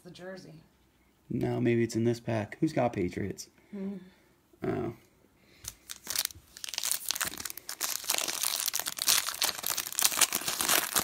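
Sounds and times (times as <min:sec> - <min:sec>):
foil wrapper crinkling: 0:05.6 - 0:11.0.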